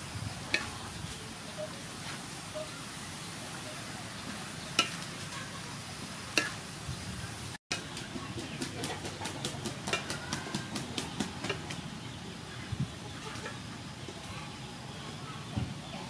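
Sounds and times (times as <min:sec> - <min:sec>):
food sizzling: 0:00.0 - 0:08.0
spatula clacking against wok: 0:04.8 - 0:05.0, 0:09.5 - 0:10.6.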